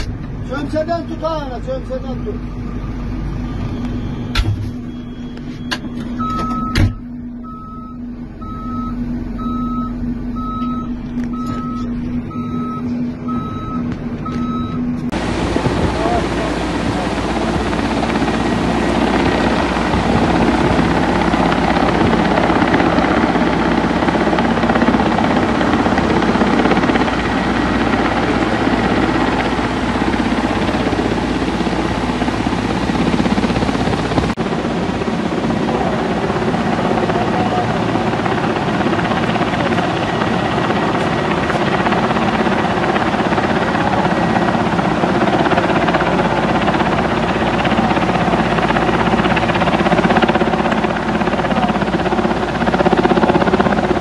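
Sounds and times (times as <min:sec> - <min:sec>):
helicopter flying low: 0:00.0 - 0:54.0
rushing floodwater: 0:15.2 - 0:52.5.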